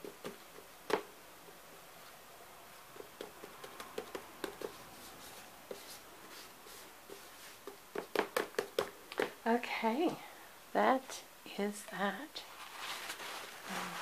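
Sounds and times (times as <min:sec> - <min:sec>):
hands tapping damp paper: 0:02.9 - 0:06.4, 0:07.0 - 0:09.4.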